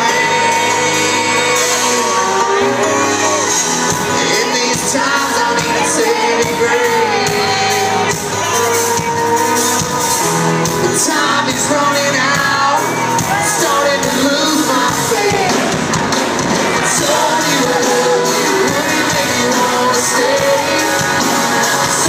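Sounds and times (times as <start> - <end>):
audience shouting and whooping: 0.0 - 11.1
live country band with singing: 0.0 - 22.0.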